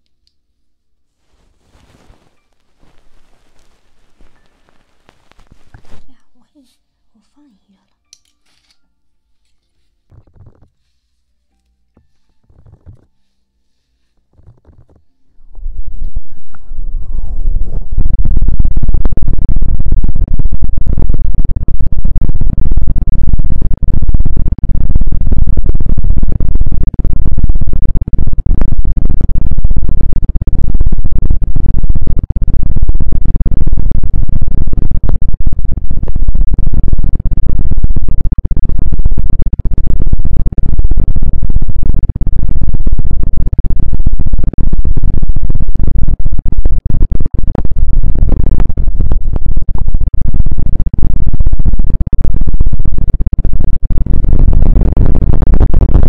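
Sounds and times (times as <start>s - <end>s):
rubbing on microphone: 1.2s - 4.2s, 5.1s - 6.9s, 9.5s - 11.4s, 12.0s - 15.3s.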